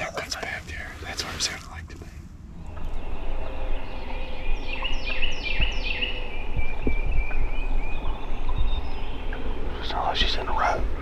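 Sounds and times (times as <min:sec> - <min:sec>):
low steady rumble: 0:00.0 - 0:11.0
songbird whistling notes: 0:02.6 - 0:10.8.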